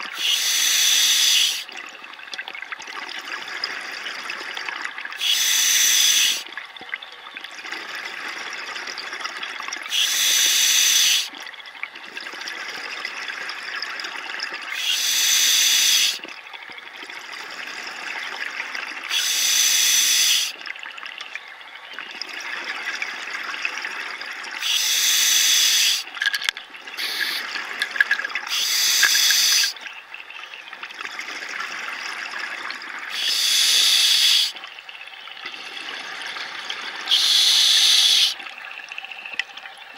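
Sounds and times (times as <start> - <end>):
regulator hiss: 0.2 - 1.6, 5.2 - 6.4, 9.9 - 11.3, 14.8 - 16.2, 19.1 - 20.5, 24.6 - 26.0, 27.0 - 27.4, 28.5 - 29.8, 33.1 - 34.6, 37.1 - 38.4.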